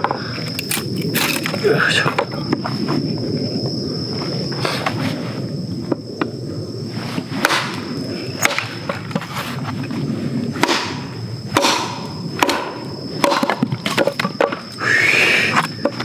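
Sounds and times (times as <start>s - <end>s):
hatchet chopping firewood: 7.4s - 7.8s, 10.6s - 14.6s.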